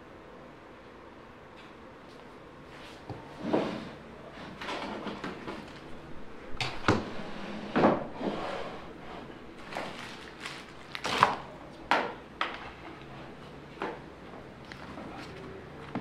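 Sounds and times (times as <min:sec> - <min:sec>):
wooden drawer scraping: 0:03.2 - 0:06.0, 0:06.6 - 0:11.4.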